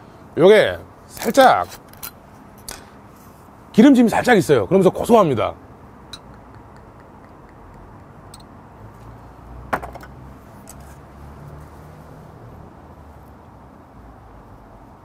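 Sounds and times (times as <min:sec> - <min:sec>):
low background hum: 0:00.0 - 0:10.8
glass set down on table: 0:09.7 - 0:10.1.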